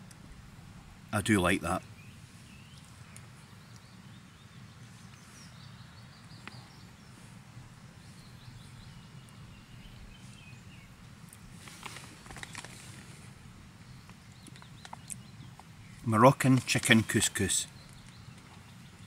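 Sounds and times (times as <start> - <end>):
faint birds chirping: 0.0 - 19.0.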